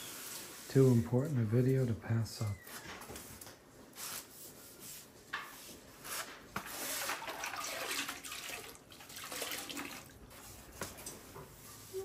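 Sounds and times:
wet sponge rubbing on tile: 4.0s - 7.4s.

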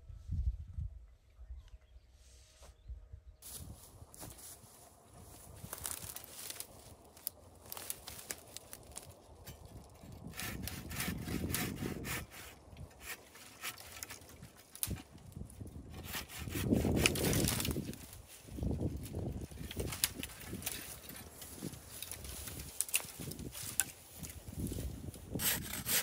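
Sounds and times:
twigs and leaves rustling: 3.4s - 26.0s
hand saw cutting branch: 10.1s - 15.1s, 15.8s - 17.9s, 25.3s - 26.0s.

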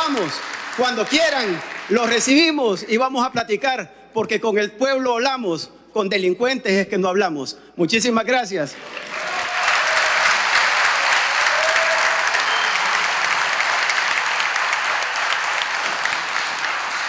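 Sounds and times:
crowd applauding: 0.0s - 2.9s, 8.7s - 17.0s.

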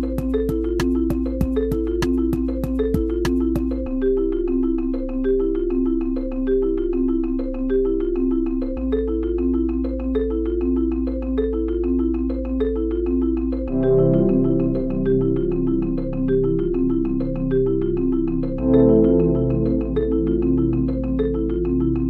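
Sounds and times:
held bass note: 13.7s - 15.5s
melody of short struck notes: 13.7s - 16.0s, 18.6s - 21.6s.

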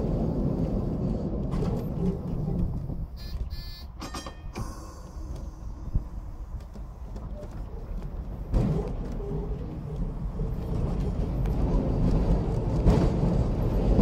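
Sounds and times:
tram rumbling on rails: 0.0s - 14.0s
metal clank: 4.0s - 5.9s.

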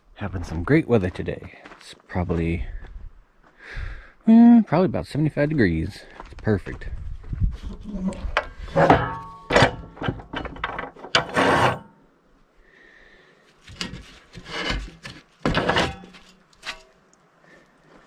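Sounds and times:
irregular scrapes and knocks: 7.6s - 11.9s, 13.6s - 17.0s.

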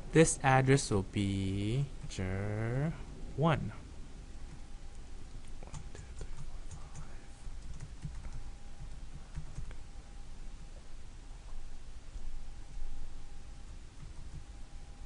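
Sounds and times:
typing on a keyboard: 5.6s - 9.7s.

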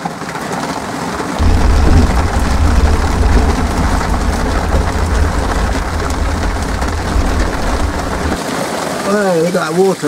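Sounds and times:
deep steady rumble: 1.4s - 8.4s
heavy rain on a vehicle shell: 1.4s - 8.4s.

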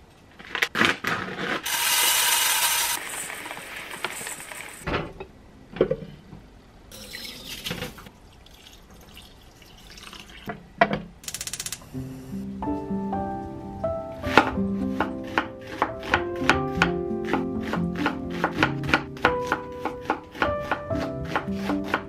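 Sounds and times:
rice poured into metal bowl: 1.6s - 4.8s.

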